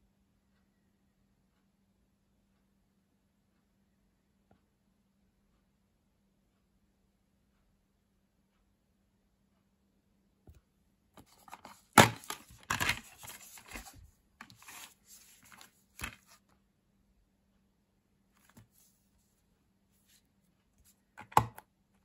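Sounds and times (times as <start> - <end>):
plastic case click: 11.2 - 16.2, 21.2 - 21.6
plastic case snapping: 11.2 - 16.2, 21.2 - 21.6
plastic rustling and crinkling: 11.2 - 16.4.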